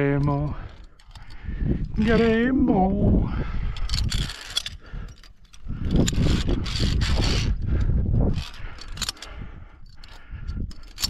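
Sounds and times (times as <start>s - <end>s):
carabiners clicking on steel cable: 0.0s - 11.0s
deep rumble: 0.0s - 11.0s.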